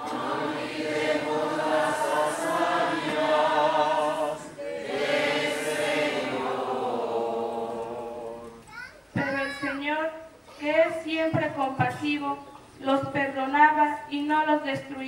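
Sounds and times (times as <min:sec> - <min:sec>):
group singing a hymn: 0:00.0 - 0:08.7.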